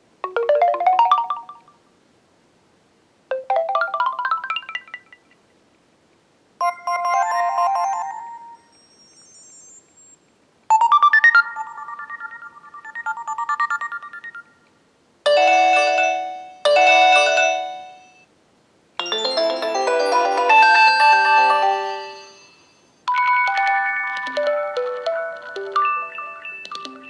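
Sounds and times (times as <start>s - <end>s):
phone ringtone melodies: 0.2s - 1.8s, 3.3s - 5.2s, 6.6s - 9.8s, 10.7s - 14.6s, 15.3s - 18.2s, 19.0s - 27.0s
bright chord: 19.0s - 22.7s.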